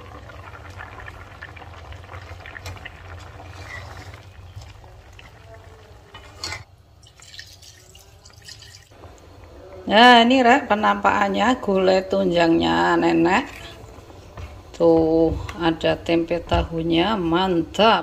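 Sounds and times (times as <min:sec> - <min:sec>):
liquid being poured: 0:07.0 - 0:09.0.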